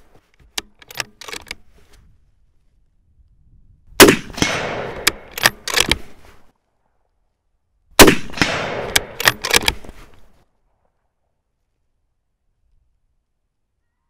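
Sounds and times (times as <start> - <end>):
rifle bolt clicking: 0.6 - 1.6, 4.4 - 6.1, 8.4 - 9.9
rifle shots: 4.0 - 6.2, 8.0 - 10.0.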